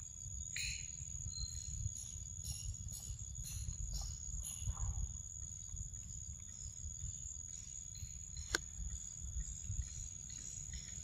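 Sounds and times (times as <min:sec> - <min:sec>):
insects trilling: 0:00.0 - 0:11.0
sharp click: 0:08.4 - 0:08.7.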